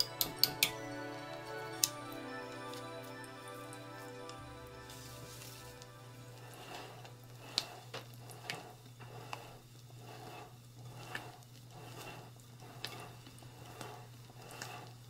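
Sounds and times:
spatula squelching in batter: 7.4s - 15.0s.

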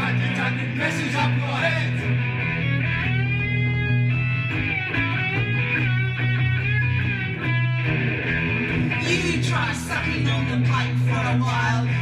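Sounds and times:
bass guitar: 0.0s - 12.0s
electric guitar lead: 0.0s - 12.0s.

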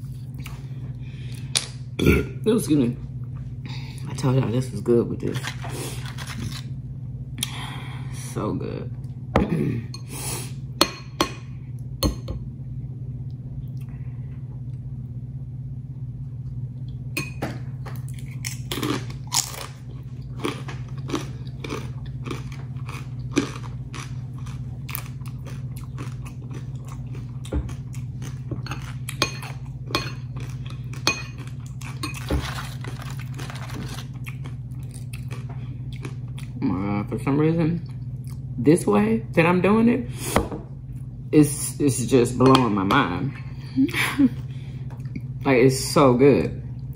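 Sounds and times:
low hum: 0.0s - 46.9s
chips crunching: 17.9s - 29.2s, 30.2s - 36.6s.

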